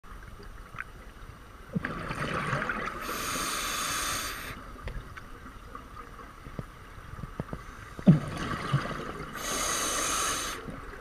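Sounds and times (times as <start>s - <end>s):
faint underwater background: 0.0s - 11.0s
diver breathing through regulator: 3.0s - 4.6s, 9.4s - 10.7s.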